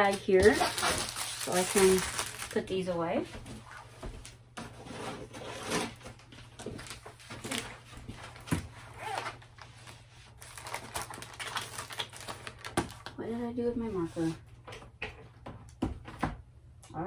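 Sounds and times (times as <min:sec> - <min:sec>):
plastic bags crinkling: 0:00.0 - 0:02.9, 0:06.6 - 0:09.7, 0:10.3 - 0:13.2.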